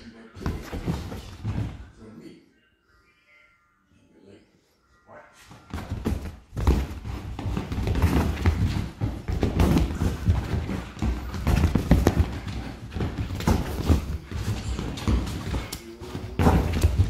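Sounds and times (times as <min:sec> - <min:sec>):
dog paws thumping on sofa: 0:00.4 - 0:01.8, 0:05.6 - 0:17.0.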